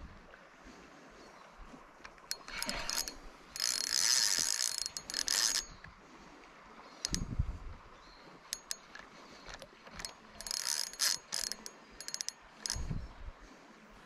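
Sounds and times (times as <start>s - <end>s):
fishing reel clicking: 2.0s - 5.9s, 7.0s - 7.4s, 8.5s - 13.2s.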